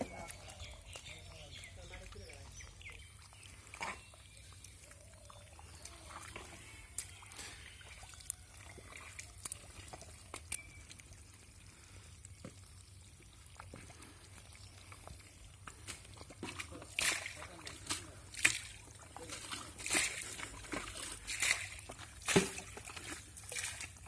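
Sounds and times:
legs wading through wet mud: 0:00.0 - 0:24.0.

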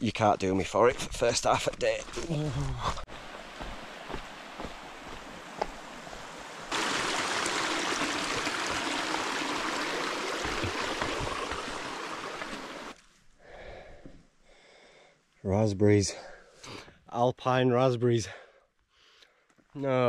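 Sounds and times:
stream rushing over rocks: 0:03.0 - 0:13.0.

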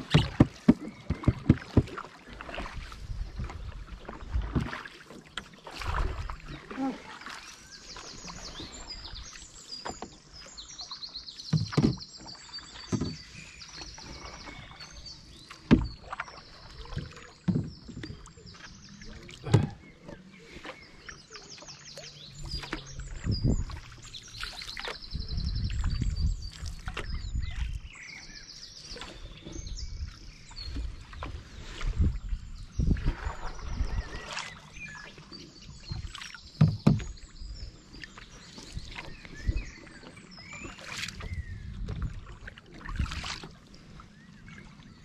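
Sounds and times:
water dripping off paddles: 0:00.0 - 0:32.2
paddles splashing through water: 0:00.0 - 0:45.0.

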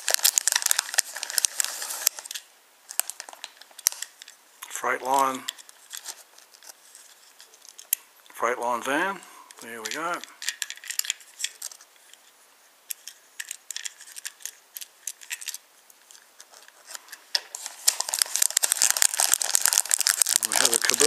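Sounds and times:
plastic bag crinkling: 0:00.0 - 0:04.4, 0:09.6 - 0:12.0, 0:13.0 - 0:21.0.

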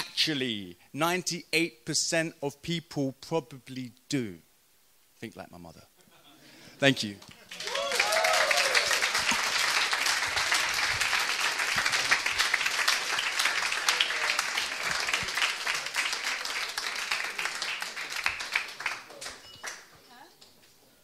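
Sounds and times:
audience applauding: 0:07.2 - 0:19.9.

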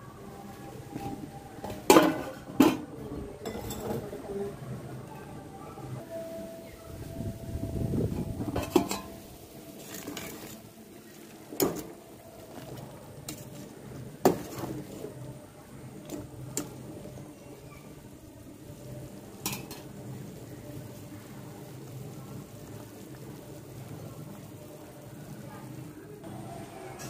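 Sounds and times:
pot boiling and bubbling: 0:00.0 - 0:27.0
metal skimmer clinking against pots: 0:00.9 - 0:04.1, 0:08.5 - 0:10.6, 0:19.4 - 0:19.9.

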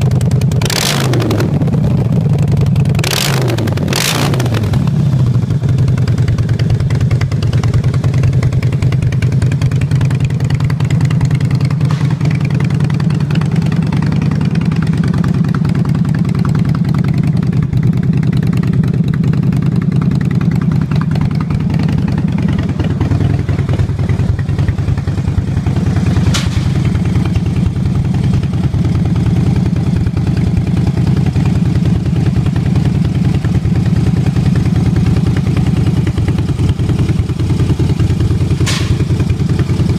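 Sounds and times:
motorcycle engine idling: 0:00.0 - 0:39.9
sharp click: 0:26.3 - 0:26.8, 0:38.6 - 0:39.1.

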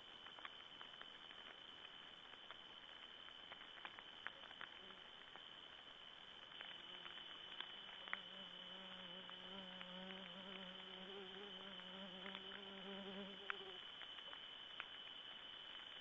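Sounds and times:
flying insect buzzing: 0:06.8 - 0:07.4, 0:08.0 - 0:13.9.

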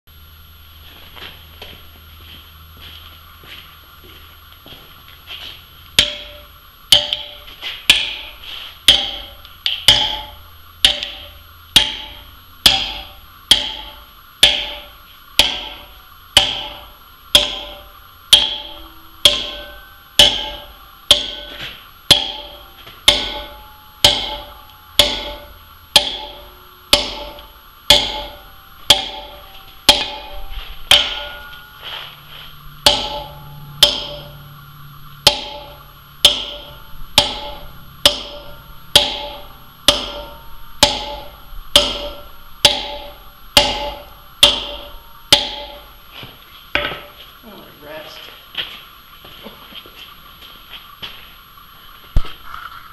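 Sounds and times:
hammer striking steel wedges: 0:05.9 - 0:47.2.

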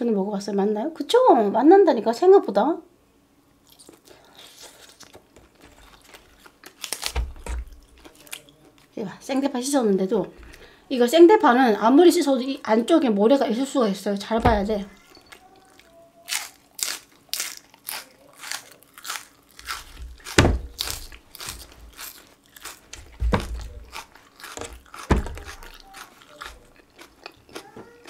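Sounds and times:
crunching raw green onion: 0:03.7 - 0:08.9, 0:14.9 - 0:28.0
deep loud bites: 0:19.6 - 0:26.5.

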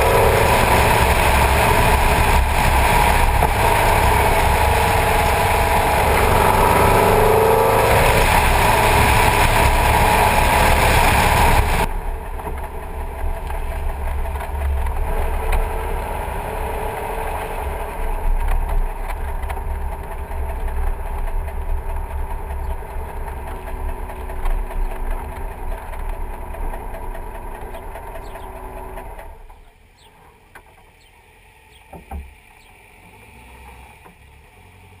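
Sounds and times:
car engine running: 0:00.0 - 0:33.2
thump: 0:31.9 - 0:32.3.

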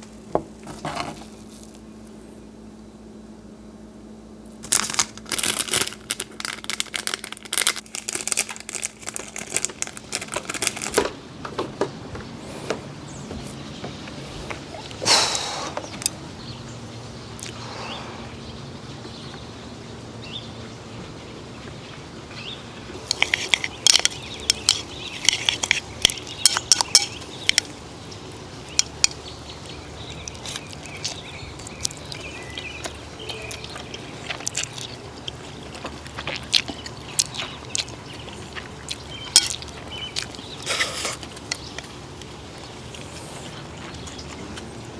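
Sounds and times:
chopsticks clicking against bowl: 0:23.0 - 0:27.7
noodles being slurped: 0:23.0 - 0:27.8, 0:29.7 - 0:44.6.

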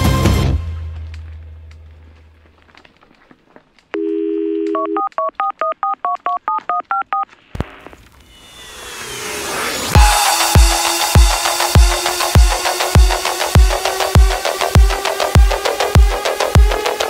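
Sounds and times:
telephone dial tone: 0:04.0 - 0:07.3
touch-tone keypress beeps: 0:04.0 - 0:07.3.

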